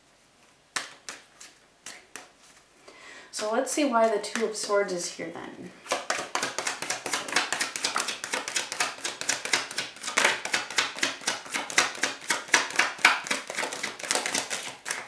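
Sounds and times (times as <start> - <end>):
cards being shuffled: 0.7 - 2.6, 5.8 - 15.0.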